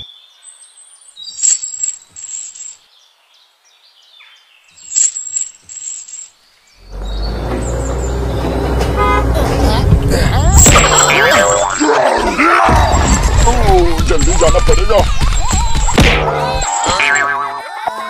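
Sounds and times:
bird chirping: 0.0s - 8.8s.

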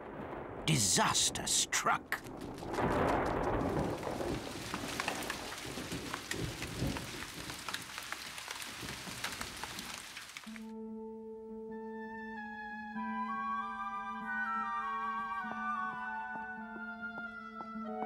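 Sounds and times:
thunder rumble: 0.0s - 9.8s
heavy rain pattering: 0.0s - 10.7s.

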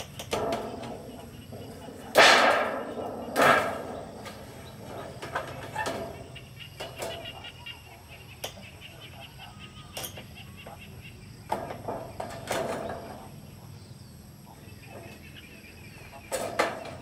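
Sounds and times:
metal roofing sheet clattering: 0.0s - 7.3s, 11.5s - 13.4s, 16.3s - 17.0s
faint bird chirps: 2.8s - 17.0s.

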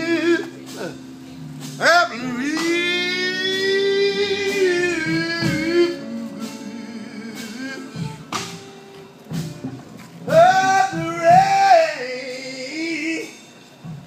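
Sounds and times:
blues guitar: 0.0s - 14.0s
man singing long note: 1.8s - 8.2s, 10.3s - 13.4s.

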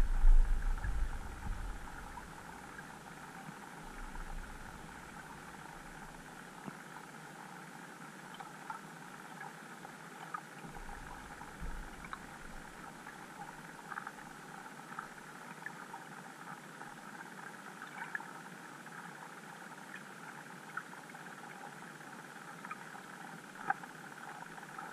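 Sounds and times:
low rumble: 0.0s - 2.5s
faint clicks and ticks: 0.0s - 24.9s.

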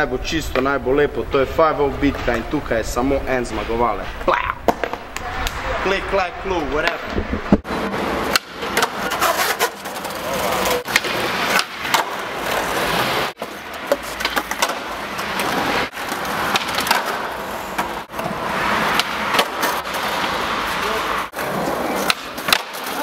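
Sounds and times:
skateboard wheels rolling on concrete: 0.0s - 23.0s
skateboard snapping and landing: 4.6s - 5.6s, 6.9s - 10.1s, 10.8s - 12.3s, 13.4s - 18.0s, 18.9s - 20.3s, 22.0s - 23.0s.

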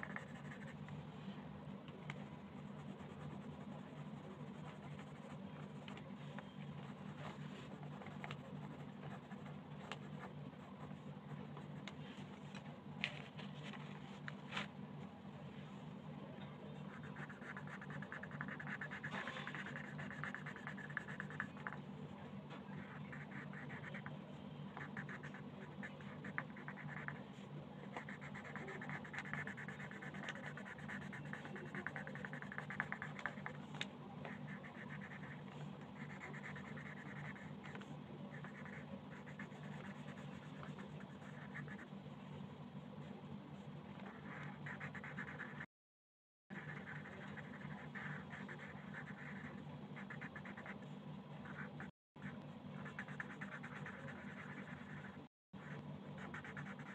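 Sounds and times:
pencil scratching on paper: 0.0s - 0.8s, 2.4s - 5.9s, 6.8s - 11.7s, 16.9s - 21.8s, 22.7s - 24.2s, 24.8s - 27.2s, 27.8s - 33.6s, 34.3s - 41.9s, 43.0s - 45.7s, 46.5s - 50.8s, 51.4s - 56.9s
low steady hum: 0.0s - 45.7s, 46.5s - 56.9s.

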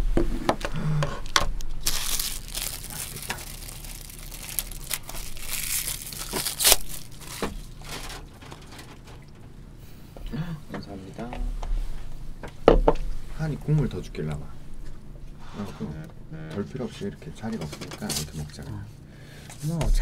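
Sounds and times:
plastic containers crinkling and scraping: 0.2s - 9.4s.

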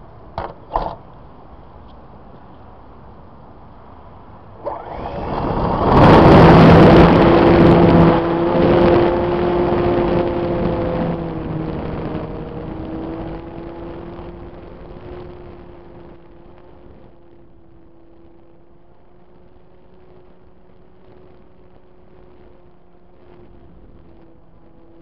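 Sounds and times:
model plane motor whining: 4.6s - 9.2s.

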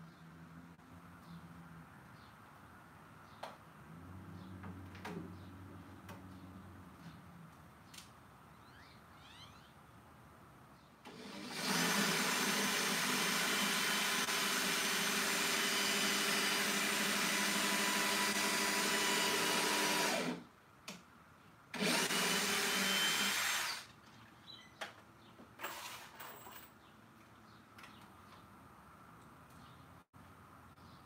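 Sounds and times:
cordless drill driving screws: 11.0s - 20.4s, 21.8s - 23.9s, 25.6s - 26.3s.

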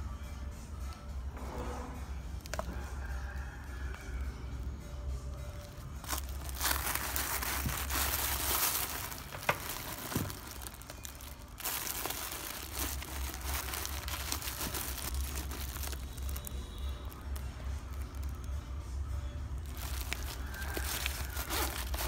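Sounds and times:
tissue paper crinkling and rustling: 5.6s - 18.4s, 19.6s - 22.0s.

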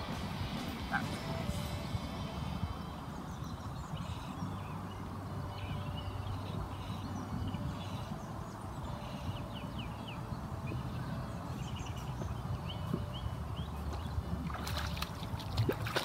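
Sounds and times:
steady low rumble: 0.0s - 16.0s
small birds chirping: 0.4s - 16.0s.

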